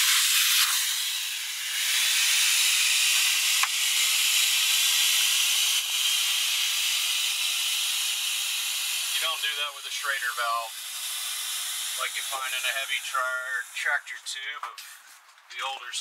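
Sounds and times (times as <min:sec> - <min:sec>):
air hissing out of valve: 0:00.0 - 0:03.4, 0:10.5 - 0:14.0.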